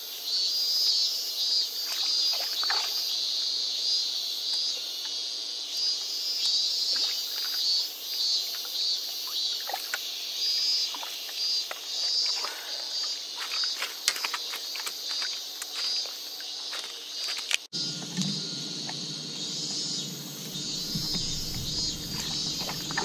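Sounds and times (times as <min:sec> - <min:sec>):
pulsing insect chorus: 0:00.0 - 0:23.0
small sharp ticks: 0:08.4 - 0:10.1, 0:13.4 - 0:19.0.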